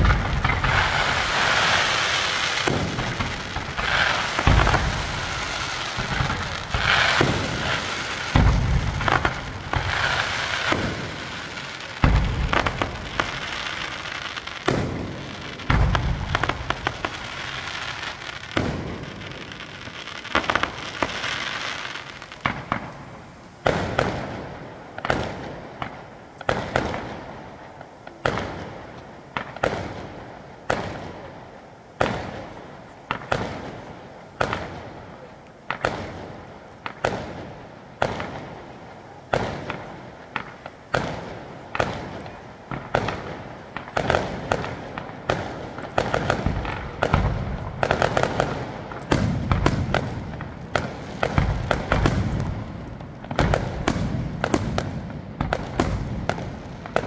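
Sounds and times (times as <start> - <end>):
firework shells bursting: 0.0 - 24.2, 39.3 - 57.0.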